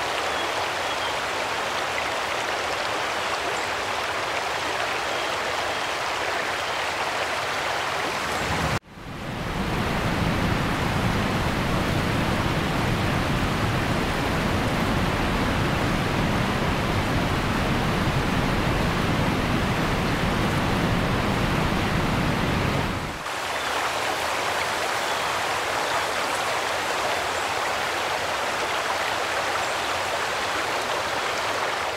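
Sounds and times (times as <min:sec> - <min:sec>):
heavy rain pouring: 0:07.4 - 0:31.9.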